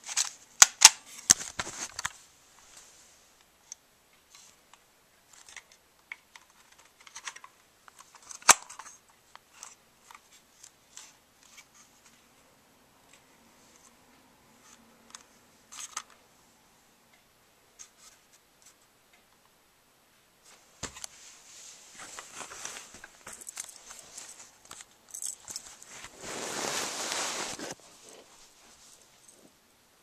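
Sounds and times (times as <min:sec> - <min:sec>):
handling rustling against camera: 0:00.0 - 0:02.9, 0:20.5 - 0:29.5.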